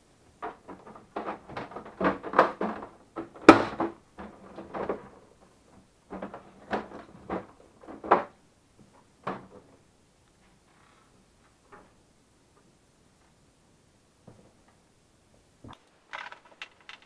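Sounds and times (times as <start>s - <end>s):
plastic knocks clicks and scrapes: 0.4s - 9.7s, 15.7s - 17.0s.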